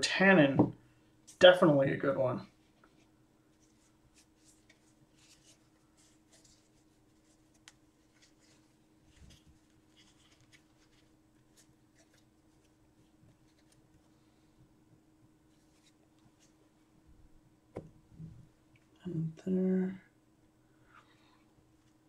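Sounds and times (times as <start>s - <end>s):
faint steady hum: 0.0s - 22.0s
cards rustling and ticking: 3.6s - 14.2s
soft tap: 17.7s - 18.0s.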